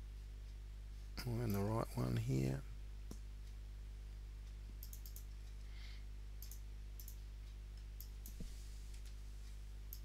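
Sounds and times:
steady low hum: 0.0s - 10.0s
computer mouse clicks: 4.8s - 5.6s, 6.4s - 7.2s, 7.8s - 8.4s.

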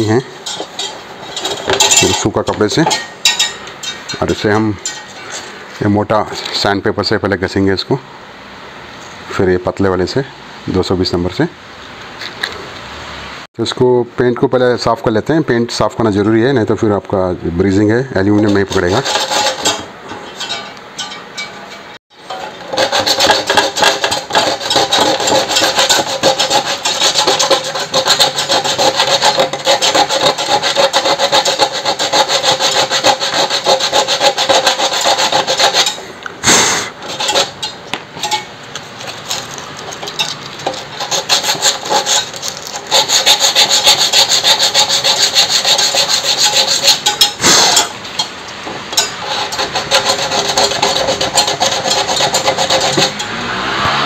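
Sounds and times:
sandpaper rubbing on metal: 18.4s - 19.9s, 22.3s - 37.7s, 40.6s - 47.9s, 49.2s - 53.2s.

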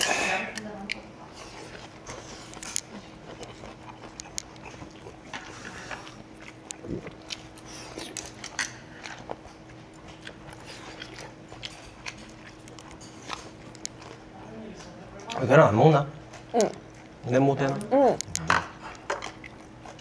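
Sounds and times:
faint steady hum: 0.0s - 20.0s
people chewing: 0.0s - 20.0s.

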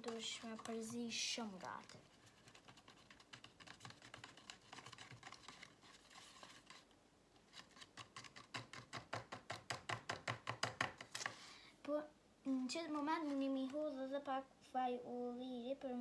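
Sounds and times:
spoon stirring in plastic cup: 0.0s - 11.3s.

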